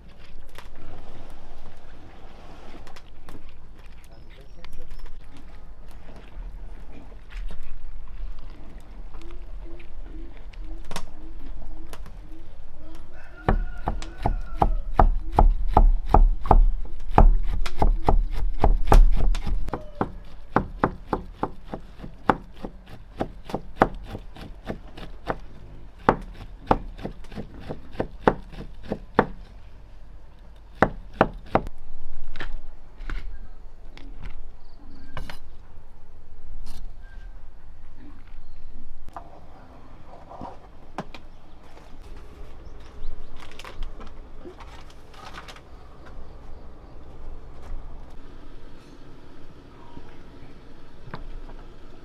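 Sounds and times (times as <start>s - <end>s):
cleaver chopping on wooden block: 13.5s - 25.4s, 26.0s - 29.4s, 30.8s - 31.7s.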